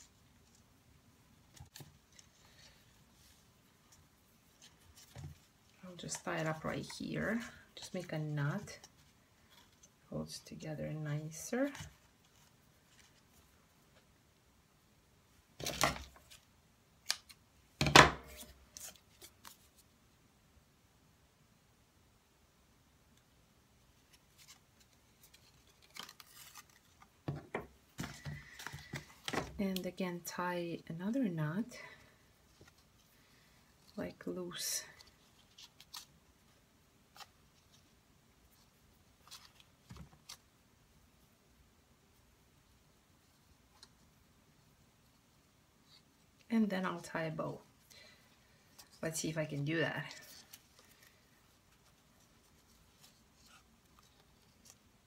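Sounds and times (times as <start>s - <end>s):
cardstock and twine rustling: 0.0s - 14.1s, 18.2s - 20.0s, 23.9s - 30.3s, 31.8s - 40.6s, 43.2s - 55.0s
paper rustling: 24.0s - 29.6s, 50.0s - 55.0s.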